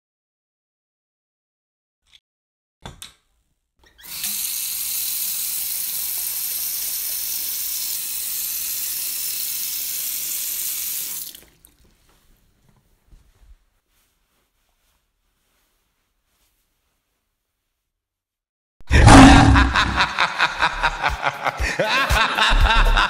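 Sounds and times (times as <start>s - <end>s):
tap water pouring into sink: 4.0s - 12.0s.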